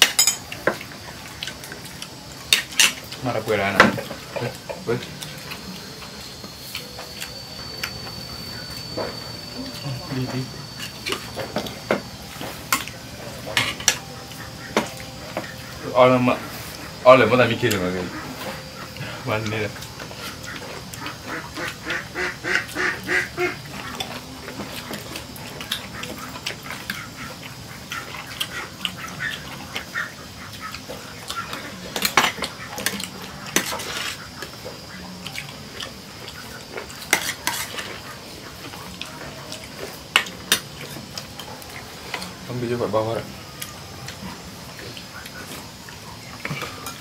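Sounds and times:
cutlery and dishes clinking: 0:00.0 - 0:00.8, 0:10.8 - 0:15.6, 0:31.4 - 0:34.5, 0:36.8 - 0:38.1.

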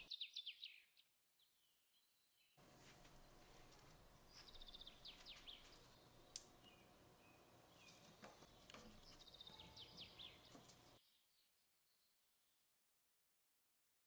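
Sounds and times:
faint low hum: 0:02.6 - 0:11.0
high bird chirps: 0:04.2 - 0:11.4.

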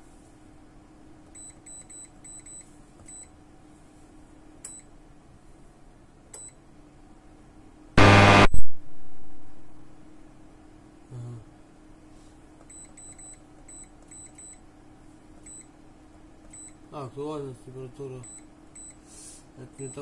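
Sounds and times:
faint steady hum: 0:00.0 - 0:20.0
loud harsh buzz: 0:08.0 - 0:09.8.

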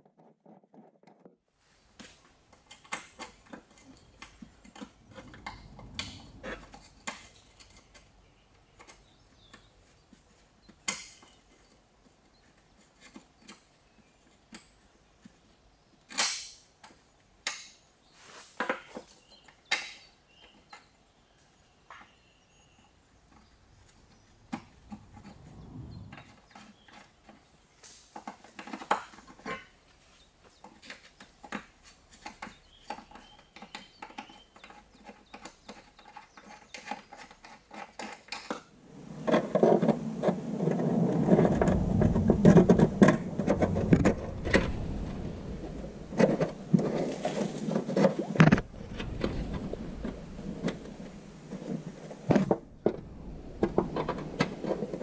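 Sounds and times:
rubbing and knocking: 0:02.9 - 0:10.4, 0:23.4 - 0:27.4, 0:30.6 - 0:55.0.

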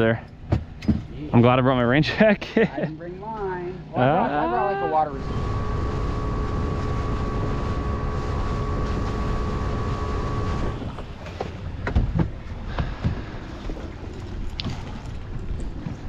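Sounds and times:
wind: 0:00.0 - 0:16.0
outboard engine whine: 0:03.8 - 0:11.8
water lapping: 0:05.0 - 0:16.0
knocks against hull: 0:10.9 - 0:13.4.

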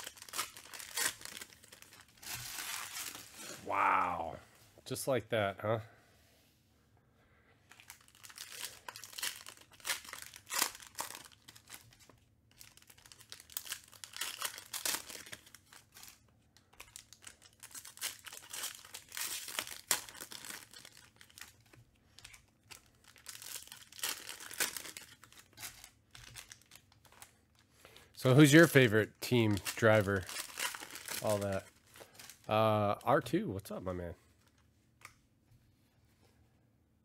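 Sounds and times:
card pack wrappers crinkling tearing: 0:00.0 - 0:03.5, 0:07.7 - 0:27.4, 0:28.2 - 0:33.1.

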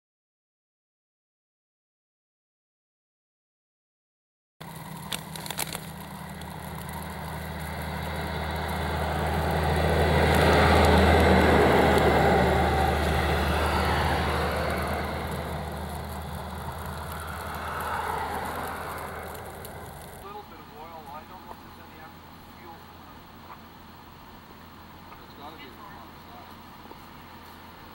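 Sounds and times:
snow hissing off plow blade: 0:04.6 - 0:23.5
heavy truck engine: 0:04.6 - 0:27.9.

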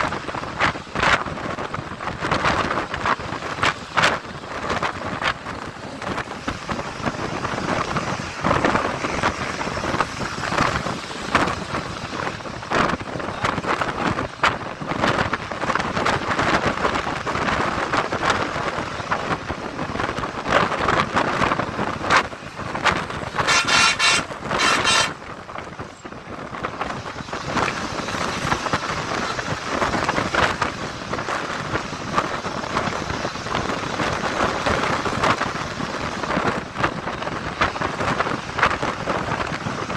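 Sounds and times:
bus road noise: 0:00.0 - 0:39.9
wind buffeting microphone: 0:00.0 - 0:39.9
loud pitched tone: 0:23.4 - 0:25.2.

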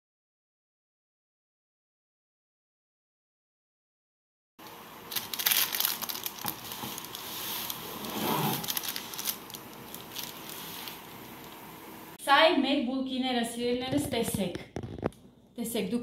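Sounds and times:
baking parchment crinkling: 0:04.6 - 0:11.7.

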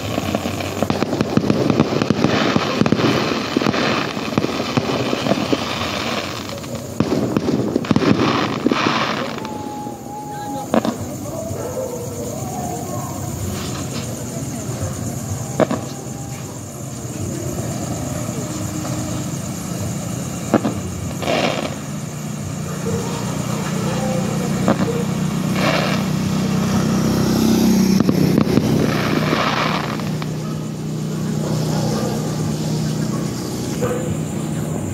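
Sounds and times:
firework bangs: 0:00.0 - 0:34.9
vehicle engine rumble: 0:00.0 - 0:34.9.

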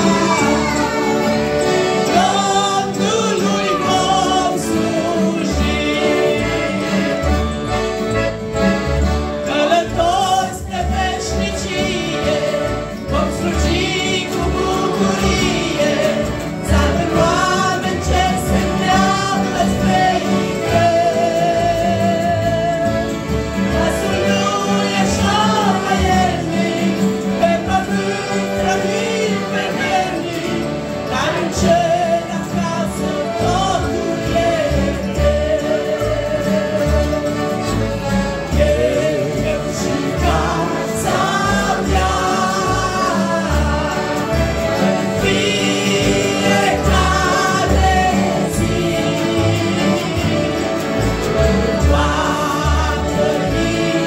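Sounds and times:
acoustic guitar: 0:00.0 - 0:54.0
piano accordions: 0:00.0 - 0:54.0
women and children singing a hymn: 0:00.0 - 0:54.0.

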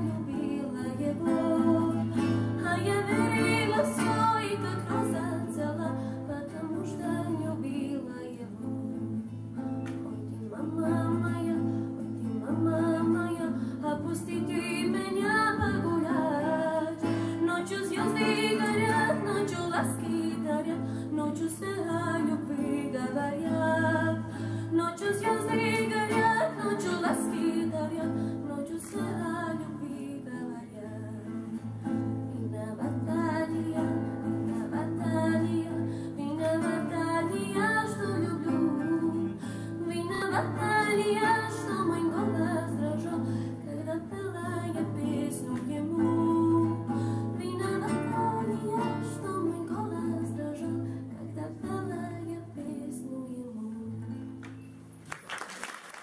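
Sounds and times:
girl singing into a microphone: 0:00.0 - 0:09.0, 0:10.1 - 0:54.2
strummed acoustic guitar: 0:00.0 - 0:53.1.

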